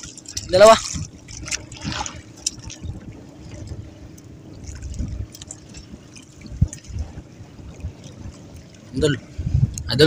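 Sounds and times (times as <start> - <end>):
low rumble: 0.0 - 10.0
water sloshing against boat hull: 0.0 - 10.0.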